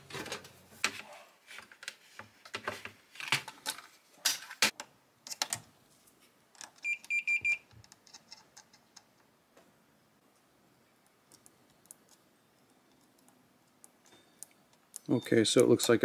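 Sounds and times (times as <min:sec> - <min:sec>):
short multimeter beeps: 0:06.8 - 0:07.6.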